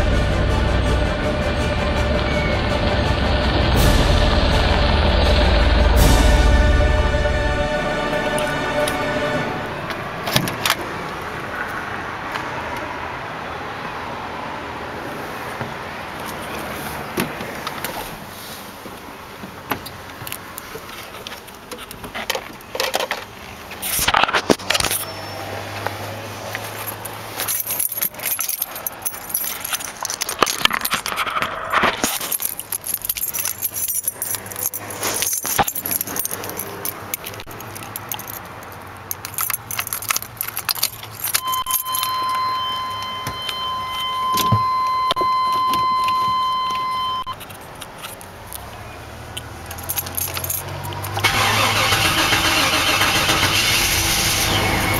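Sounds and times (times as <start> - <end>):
keys jangling: 26.5 - 44.1, 45.8 - 48.6, 49.4 - 53.0
electronic warning tone: 41.4 - 47.4.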